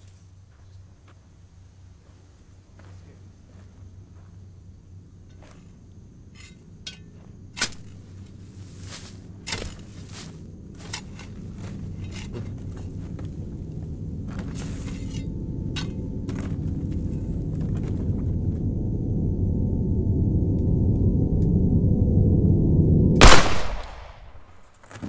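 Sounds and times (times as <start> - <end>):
digging in dirt and gravel: 5.3 - 18.1
low drone: 7.6 - 24.6.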